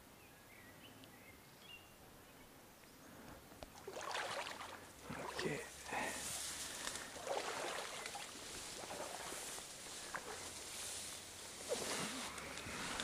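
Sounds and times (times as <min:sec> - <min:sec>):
creek water running: 0:03.6 - 0:13.0
faint clicks and rustles: 0:05.7 - 0:07.2, 0:08.0 - 0:13.0.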